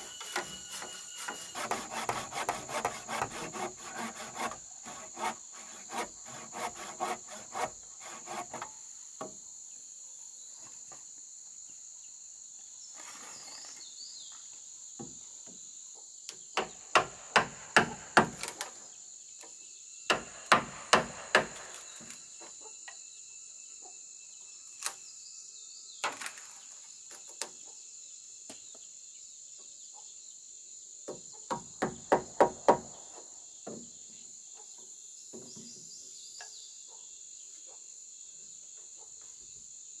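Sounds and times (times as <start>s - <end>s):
hand saw rasping through wood: 0.0s - 8.7s
insects droning: 0.0s - 40.0s
hammer striking timber: 16.6s - 18.4s, 20.1s - 21.6s, 31.5s - 32.9s.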